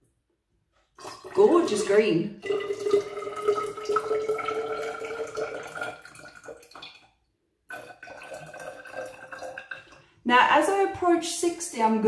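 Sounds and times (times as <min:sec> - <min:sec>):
water pouring into cylinder: 0:01.0 - 0:10.2.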